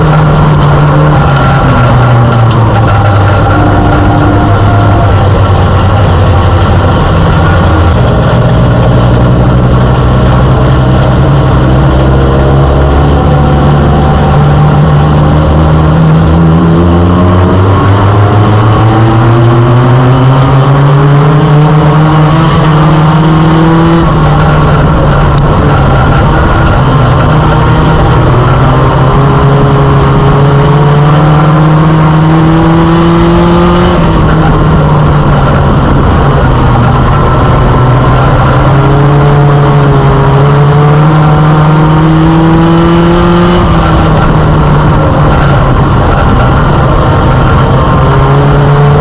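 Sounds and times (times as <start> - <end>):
race car engine: 0.0 - 49.0.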